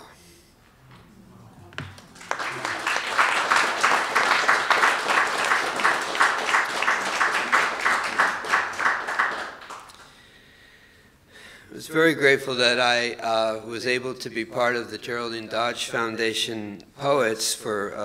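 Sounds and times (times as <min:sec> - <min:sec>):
audience applauding: 0:01.8 - 0:10.1.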